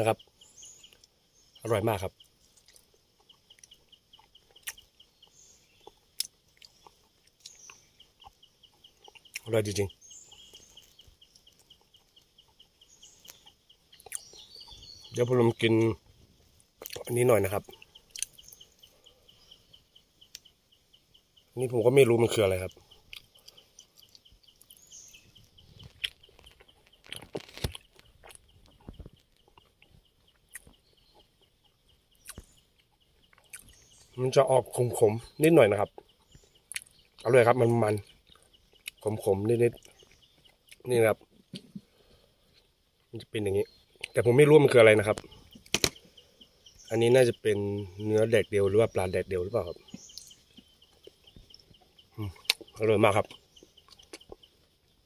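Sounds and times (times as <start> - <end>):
rapid high ticking: 0.0 - 42.6
rapid high chirping: 0.0 - 55.0
person chewing food: 2.6 - 9.5, 13.3 - 14.5, 16.8 - 18.9, 23.0 - 24.8, 25.5 - 33.9, 36.7 - 37.2.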